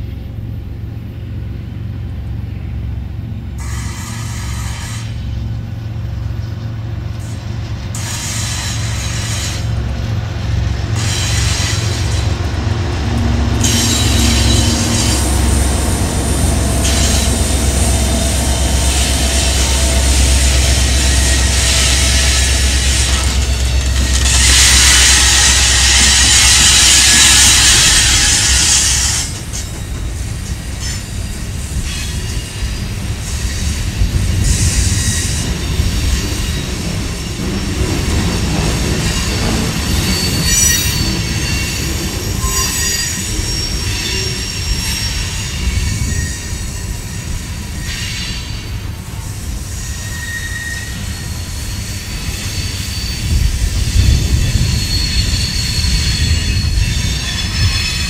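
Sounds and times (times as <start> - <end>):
train wheels rumbling on rails: 0.0 - 58.0
high wheel squeals: 13.6 - 29.9, 38.3 - 58.0.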